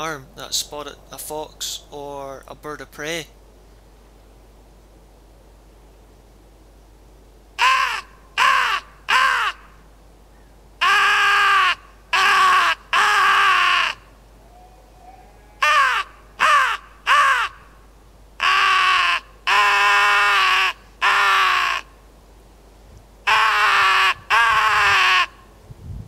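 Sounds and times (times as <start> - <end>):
crow call harsh raspy caws: 7.6 - 9.8, 10.4 - 14.1, 15.6 - 17.8, 18.4 - 22.0, 23.2 - 25.5.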